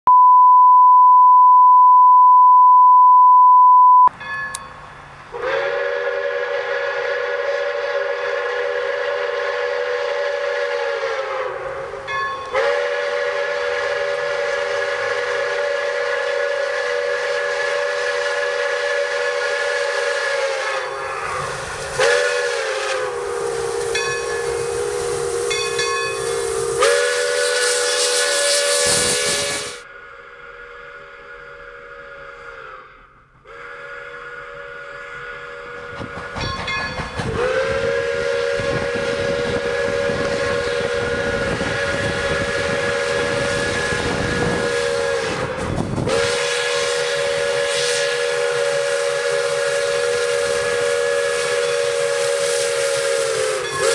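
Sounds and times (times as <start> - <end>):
test-tone beep: 0.1 - 4.7
breathy steam hiss: 5.3 - 36.3, 37.4 - 53.9
steam locomotive whistle blasts: 5.3 - 53.9.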